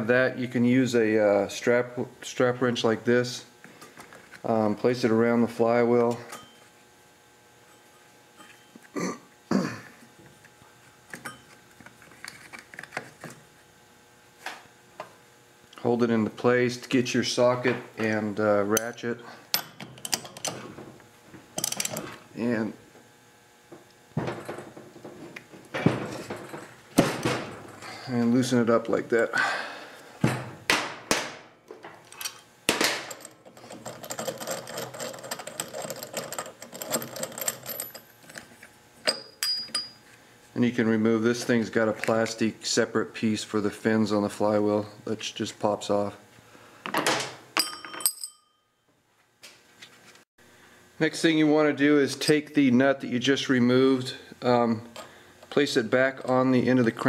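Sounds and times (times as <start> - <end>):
metal tool clanks: 39.0 - 40.0, 47.6 - 48.6.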